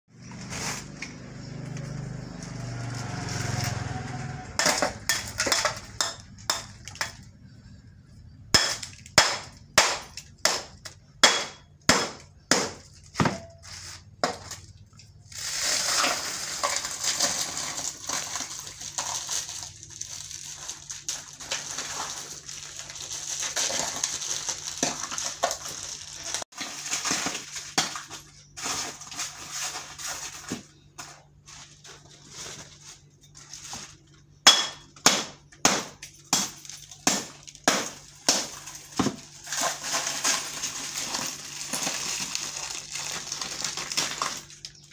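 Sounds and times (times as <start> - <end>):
rustling plastic: 0.1 - 3.9, 12.8 - 34.4, 36.5 - 44.9
crunching ice: 14.2 - 44.9.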